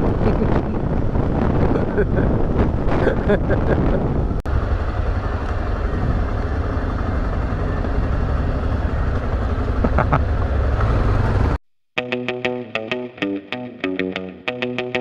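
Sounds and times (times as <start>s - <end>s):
wind rumble on microphone: 0.0s - 11.6s
motorcycle engines running: 2.5s - 11.6s.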